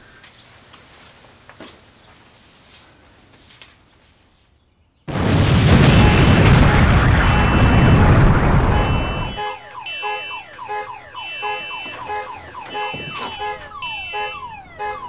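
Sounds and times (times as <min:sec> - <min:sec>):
loud boom: 0:05.1 - 0:09.4
car alarm whooping and beeping: 0:05.6 - 0:15.0.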